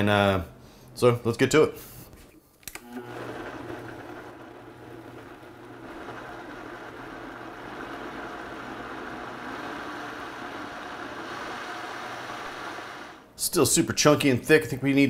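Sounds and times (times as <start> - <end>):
clicks: 2.6 - 3.0
blender running: 2.8 - 13.3.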